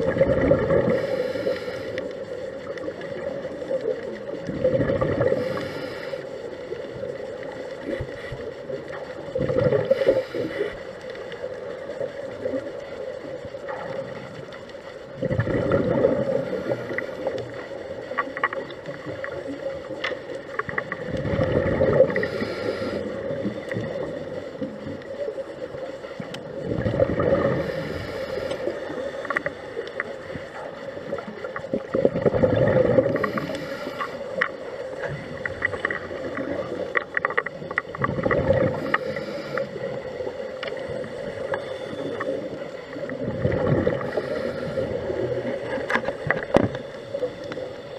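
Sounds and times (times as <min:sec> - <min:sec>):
gurgling exhaled bubble bursts: 0:00.0 - 0:01.1, 0:03.0 - 0:05.6, 0:09.2 - 0:10.3, 0:15.2 - 0:17.6, 0:20.9 - 0:24.3, 0:26.5 - 0:28.0, 0:31.6 - 0:33.7, 0:37.8 - 0:40.0, 0:42.9 - 0:45.8
small clicks: 0:16.7 - 0:21.3, 0:28.0 - 0:32.0, 0:33.2 - 0:39.7.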